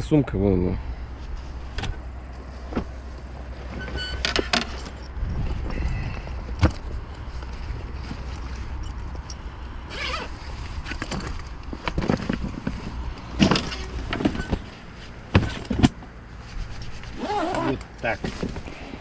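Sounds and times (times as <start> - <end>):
knocks and clunks: 2.7 - 3.0, 11.0 - 16.1
steady low rumble: 4.7 - 13.4.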